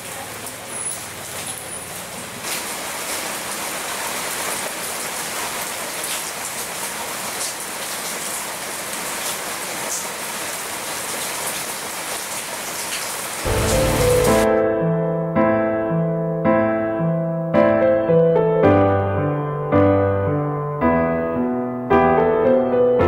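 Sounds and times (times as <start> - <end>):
rain falling on leaves: 0.0 - 14.5
raindrop hits: 12.9 - 14.6
electric piano music: 13.5 - 23.0.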